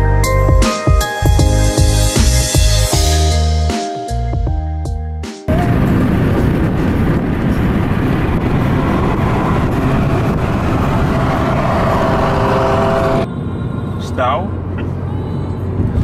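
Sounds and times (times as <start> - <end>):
passing car: 5.5 - 16.0
wind and tyre roar: 5.5 - 16.0.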